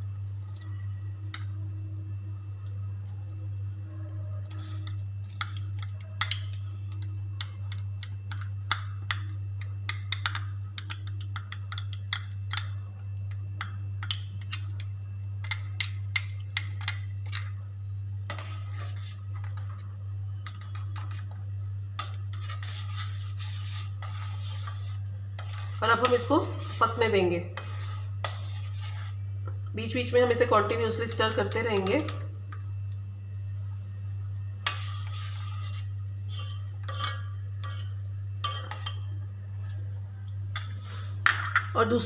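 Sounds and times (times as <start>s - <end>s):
steady low hum: 0.0s - 42.0s
spoon scraping steel pot: 18.3s - 21.4s, 22.0s - 29.2s, 34.6s - 39.1s.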